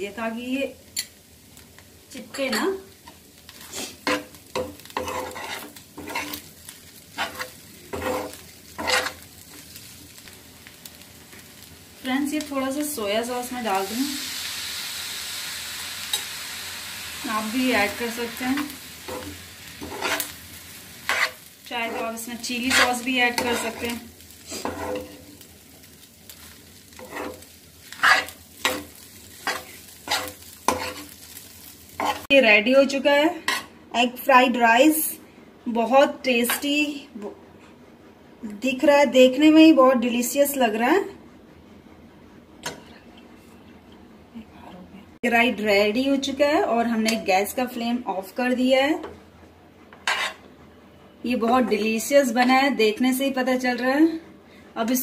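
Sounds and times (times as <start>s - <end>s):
rice sizzling: 0.0s - 37.0s, 49.7s - 50.5s
metal spoon scraping a frying pan: 3.6s - 6.5s, 7.1s - 9.2s, 18.3s - 20.4s, 21.0s - 25.3s, 26.9s - 31.2s, 33.4s - 33.7s, 50.0s - 50.5s.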